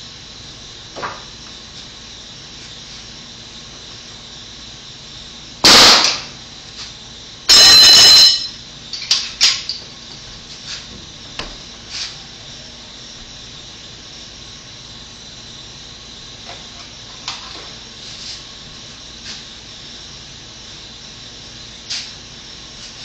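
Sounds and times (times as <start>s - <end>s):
nail gun firing: 5.6s - 6.3s.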